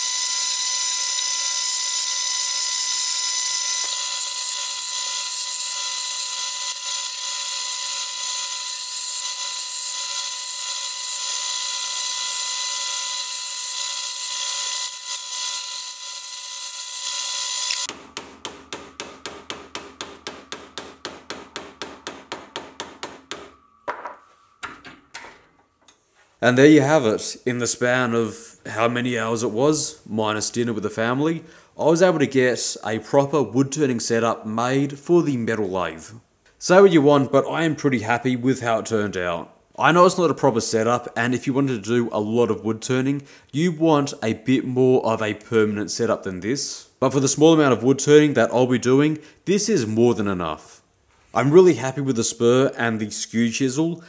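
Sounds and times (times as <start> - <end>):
lathe whining: 0.0 - 18.0
chisel cutting wood: 0.0 - 21.4.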